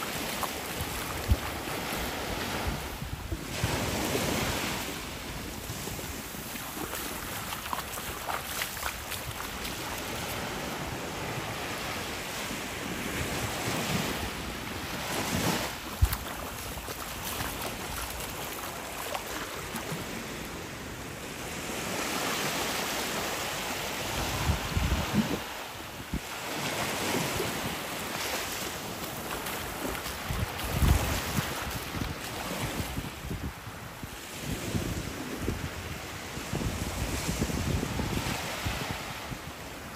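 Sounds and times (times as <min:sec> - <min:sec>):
wind buffeting microphone: 0:00.0 - 0:11.8, 0:12.8 - 0:20.2, 0:24.1 - 0:26.3, 0:28.8 - 0:39.9
small waves lapping on sand: 0:00.0 - 0:39.9.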